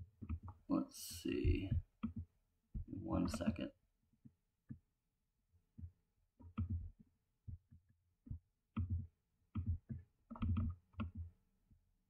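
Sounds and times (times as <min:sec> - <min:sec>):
computer mouse clicking: 0:06.4 - 0:06.8, 0:08.7 - 0:11.3.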